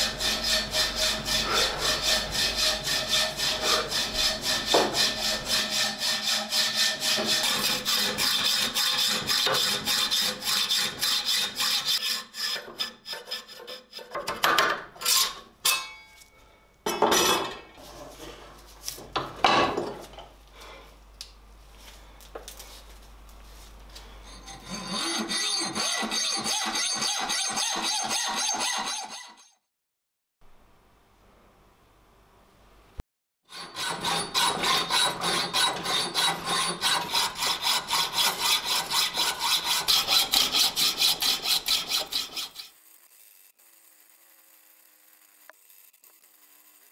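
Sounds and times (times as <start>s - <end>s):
hacksaw cutting metal: 0.0s - 16.1s, 24.3s - 29.6s, 33.5s - 43.6s
knocks and scrapes of handling: 14.1s - 20.4s.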